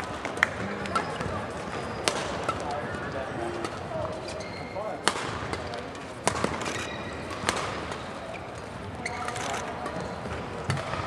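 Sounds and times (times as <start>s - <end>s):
arena hall background noise: 0.0s - 11.0s
racket hitting shuttlecock: 5.0s - 6.6s, 7.3s - 8.1s.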